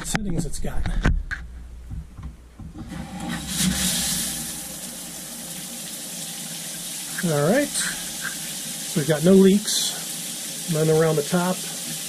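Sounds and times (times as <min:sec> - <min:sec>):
water spraying from shower head: 0:03.2 - 0:05.2, 0:05.8 - 0:12.0.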